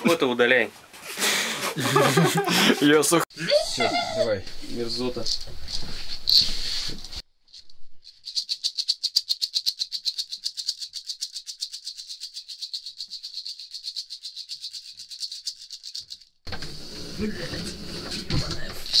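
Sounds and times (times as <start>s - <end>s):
maraca shaken in fast rhythm: 8.0s - 16.3s.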